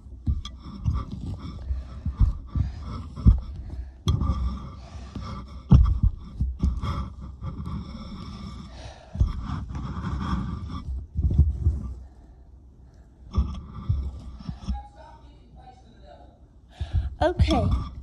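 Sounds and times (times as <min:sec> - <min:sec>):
low thuds: 0:00.0 - 0:08.4, 0:16.8 - 0:18.0.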